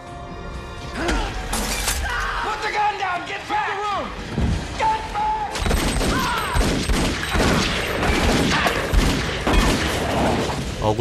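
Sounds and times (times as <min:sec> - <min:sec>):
rapid gunfire: 0:05.6 - 0:10.2.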